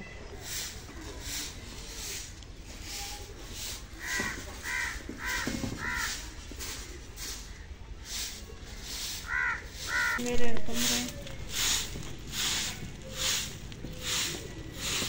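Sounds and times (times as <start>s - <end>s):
broom sweeping dirt: 0.2s - 15.0s
crow cawing: 4.0s - 6.2s, 9.2s - 10.2s.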